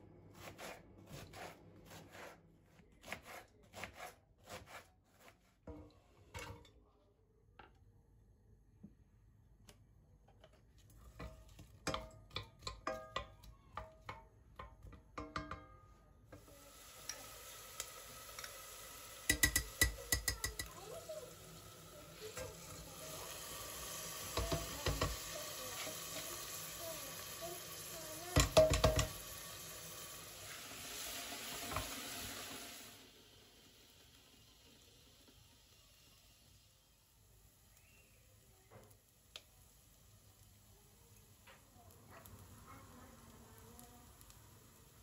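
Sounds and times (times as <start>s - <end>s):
wooden spoon scraping pot: 0.4s - 6.3s
vegetables sizzling in hot oil: 16.4s - 45.0s.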